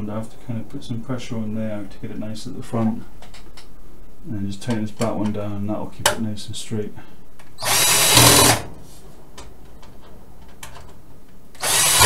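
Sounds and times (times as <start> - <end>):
cordless drill driving a screw: 7.6 - 8.6, 11.6 - 12.0.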